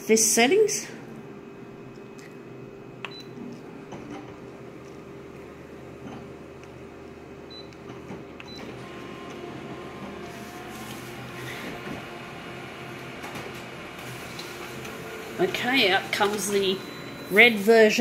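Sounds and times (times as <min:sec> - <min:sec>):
copier mechanical hum: 0:00.0 - 0:18.0.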